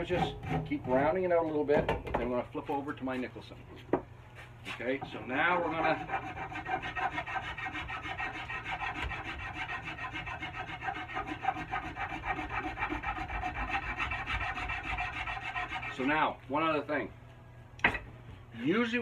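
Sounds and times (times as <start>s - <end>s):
rasp scraping wood: 5.4s - 16.2s.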